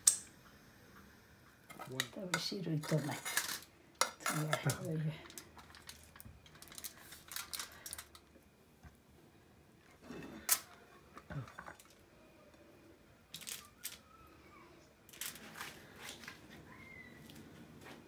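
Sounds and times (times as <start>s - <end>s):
clicks and rustles of plating: 1.7s - 8.3s.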